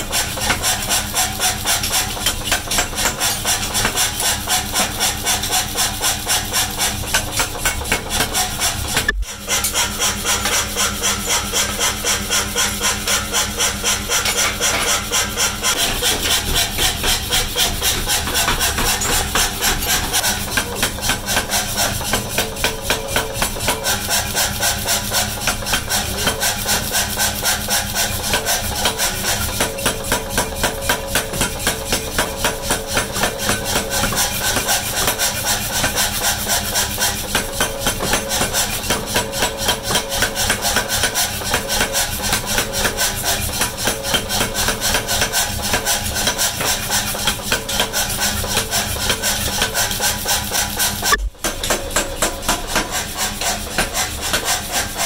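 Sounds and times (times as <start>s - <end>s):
power hammer pounding hot steel: 0.0s - 55.0s
machine running hum: 51.0s - 52.0s.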